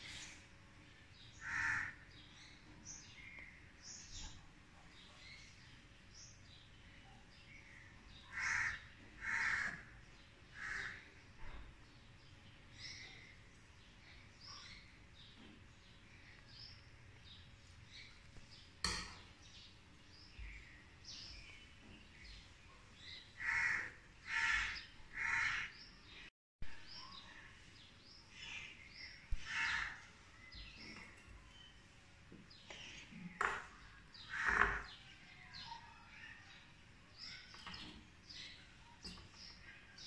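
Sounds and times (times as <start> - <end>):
small birds chirping: 0.0 - 40.0
crows cawing: 1.4 - 2.0, 8.3 - 9.9, 10.5 - 11.1, 23.4 - 25.8, 29.4 - 30.0, 34.2 - 34.9.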